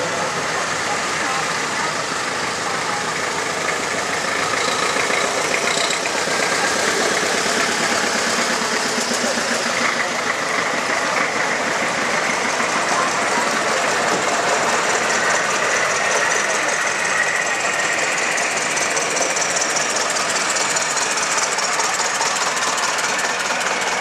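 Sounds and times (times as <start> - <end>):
small car engine: 0.0 - 24.0
tractor engine: 0.0 - 24.0.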